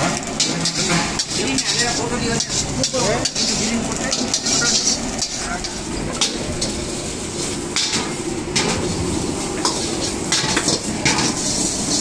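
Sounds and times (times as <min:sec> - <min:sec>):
dishes and utensils clattering: 0:00.0 - 0:06.8.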